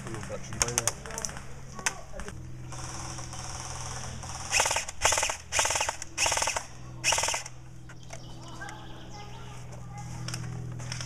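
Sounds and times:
airsoft gun full-auto bursts: 0:02.7 - 0:07.5.

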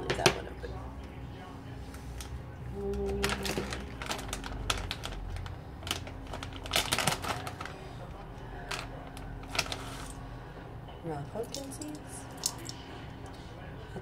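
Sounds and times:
plastic snack bag crinkling: 0:02.9 - 0:10.2.

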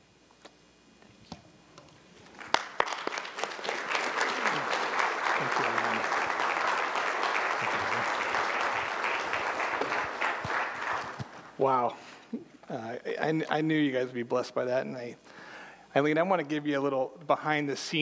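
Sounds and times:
congregation applauding: 0:02.2 - 0:11.8.

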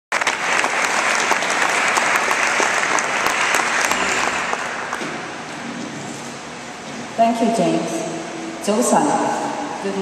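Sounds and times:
audience applauding: 0:00.1 - 0:05.5.

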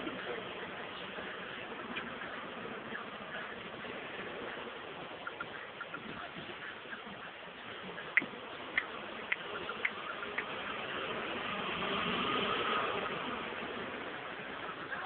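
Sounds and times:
passing engine: 0:00.0 - 0:15.0
sharp ticks: 0:08.0 - 0:10.6.

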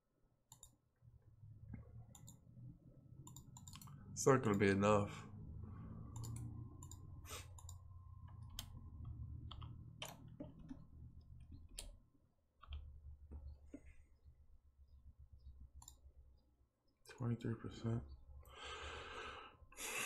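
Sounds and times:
mouse and keyboard clicks: 0:00.5 - 0:00.8, 0:03.2 - 0:04.7, 0:06.1 - 0:07.8, 0:08.5 - 0:12.0
low steady hum: 0:00.6 - 0:19.8.

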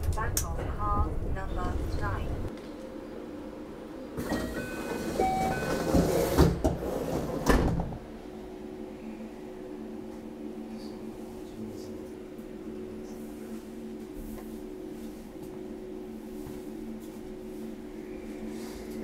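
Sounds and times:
train car steady hum: 0:00.0 - 0:19.0
sliding door opening: 0:04.2 - 0:08.0
door shutting with a thump: 0:07.4 - 0:08.0.

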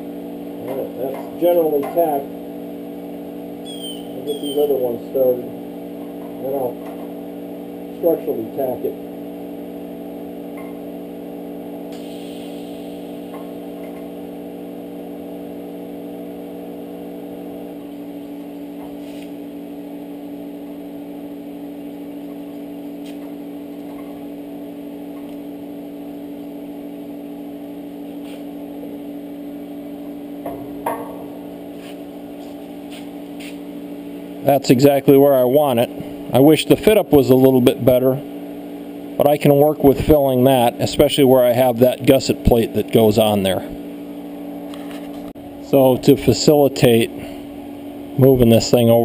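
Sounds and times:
welder electrical hum: 0:00.0 - 0:49.0
brief hiss: 0:11.9 - 0:13.0.

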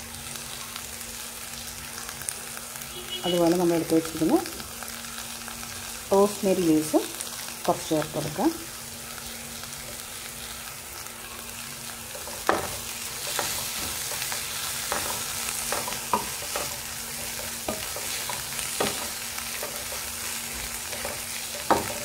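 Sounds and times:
food sizzling: 0:00.0 - 0:22.0
spatula scraping frying pan: 0:12.0 - 0:22.0.

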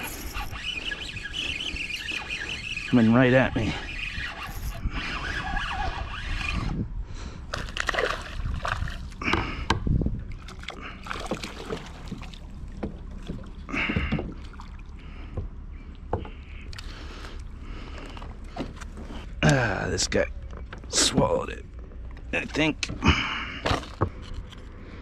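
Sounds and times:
fish splashing and thrashing: 0:00.0 - 0:03.0, 0:07.5 - 0:19.3
gear knocking and rustling: 0:00.0 - 0:06.8, 0:20.4 - 0:25.0
water sloshing against hull: 0:00.0 - 0:19.4.

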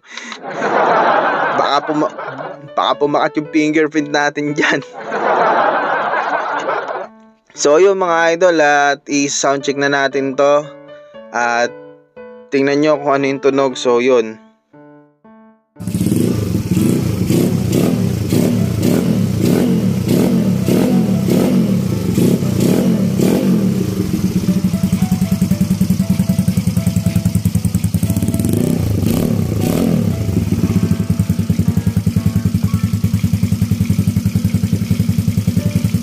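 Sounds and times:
scooter engine revving and idling: 0:15.8 - 0:36.0.

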